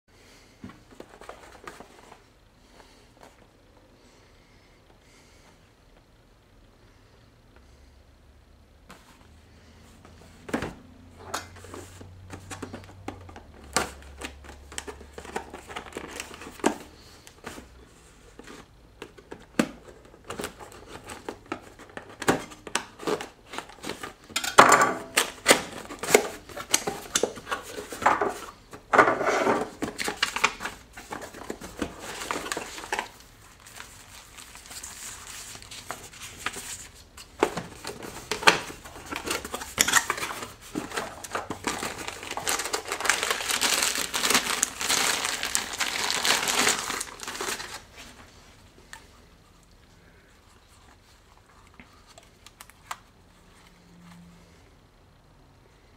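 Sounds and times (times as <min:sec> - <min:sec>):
paper manuals shuffling: 0:25.1 - 0:48.6
cardboard box rustling: 0:29.6 - 0:48.4
foam wrapping crinkling: 0:29.7 - 0:48.4.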